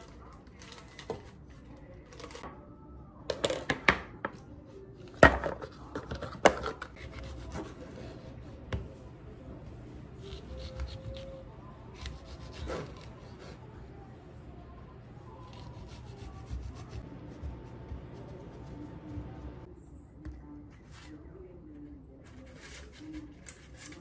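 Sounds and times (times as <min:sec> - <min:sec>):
knife slicing tomato: 0:06.3 - 0:08.2, 0:10.2 - 0:13.6, 0:15.4 - 0:19.6.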